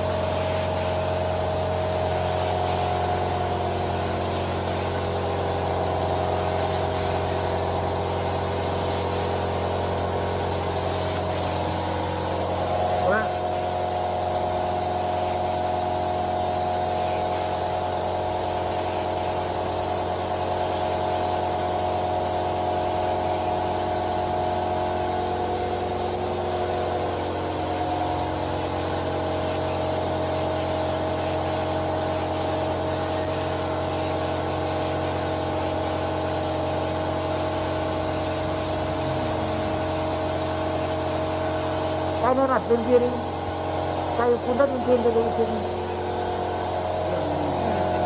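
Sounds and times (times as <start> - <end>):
air compressor motor humming: 0.0 - 48.0
spray gun hissing: 0.0 - 48.0.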